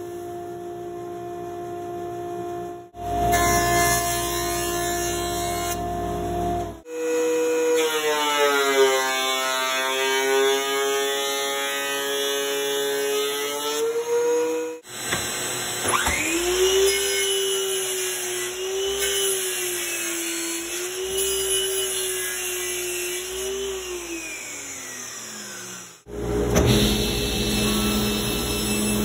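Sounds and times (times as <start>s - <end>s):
saw blade cutting wood: 14.8s - 29.0s
miter saw motor whining: 23.2s - 29.0s
thickness planer running: 23.2s - 29.0s.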